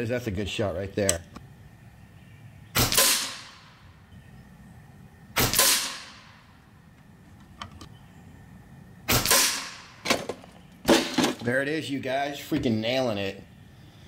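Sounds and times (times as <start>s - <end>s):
air rifle shots: 2.8s - 3.8s, 5.4s - 6.5s, 9.1s - 10.3s.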